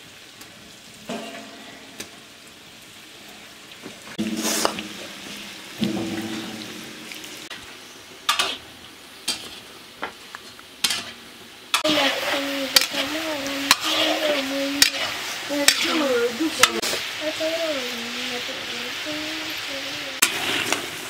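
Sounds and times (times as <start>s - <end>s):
oil sizzling: 0.0s - 21.0s
steady low tone: 4.2s - 7.6s
metal ladle clicking on pan: 10.8s - 11.9s, 14.8s - 15.1s.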